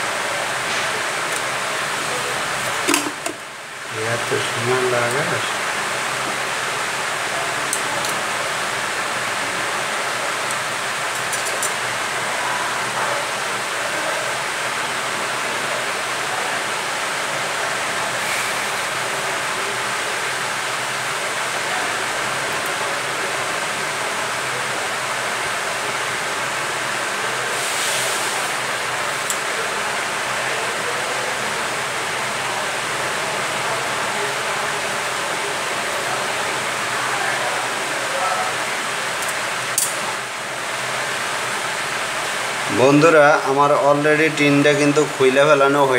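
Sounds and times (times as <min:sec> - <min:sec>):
rushing hiss of blowing air: 0:27.5 - 0:28.8.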